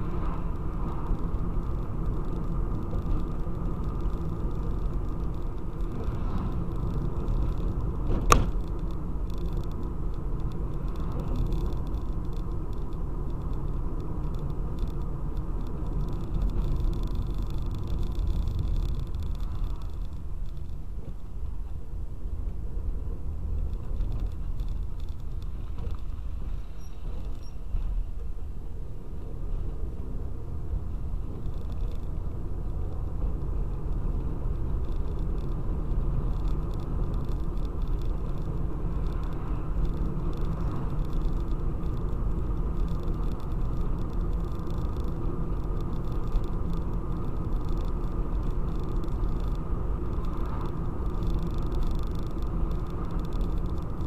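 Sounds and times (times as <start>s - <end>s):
car cabin engine and road rumble: 0.0s - 54.0s.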